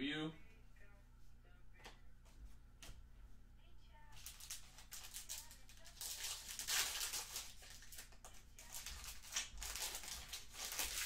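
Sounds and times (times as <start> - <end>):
foil wrapper tearing and crinkling: 4.2 - 11.0.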